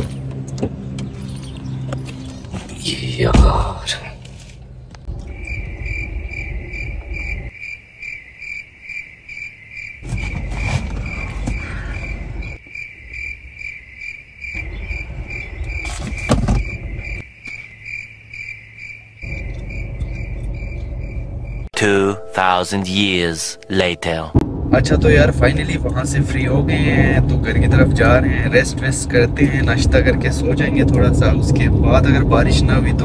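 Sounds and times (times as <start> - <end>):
crickets chirping: 5.0 - 21.7
low rumbling noise: 19.2 - 21.7, 24.3 - 33.0.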